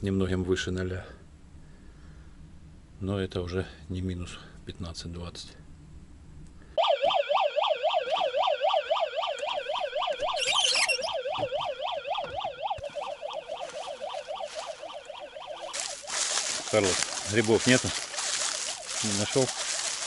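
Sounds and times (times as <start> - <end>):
electronic siren warbling: 6.8 - 20.0.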